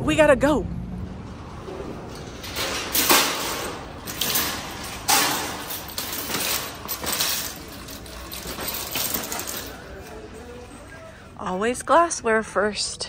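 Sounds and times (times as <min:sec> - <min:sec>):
metal shopping cart clanking: 0:01.0 - 0:11.6.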